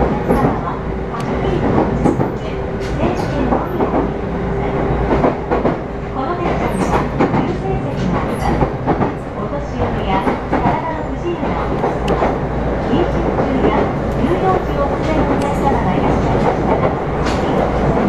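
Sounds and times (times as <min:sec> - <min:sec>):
rail joint clicks and clacks: 0:00.0 - 0:18.0
train wheels rumbling on track: 0:00.0 - 0:18.0.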